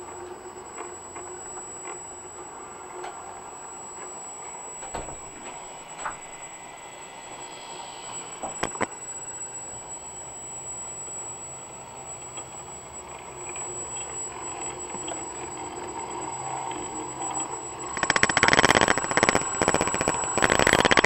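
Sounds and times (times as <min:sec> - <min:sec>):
faint hum: 0:00.0 - 0:21.0
thin high whine: 0:00.0 - 0:21.0
stepper motor buzzing rattle: 0:08.4 - 0:08.9, 0:17.2 - 0:21.0.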